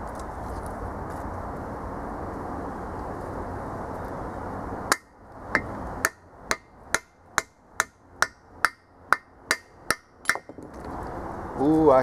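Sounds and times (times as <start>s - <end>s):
hammer striking metal: 4.9s - 10.6s.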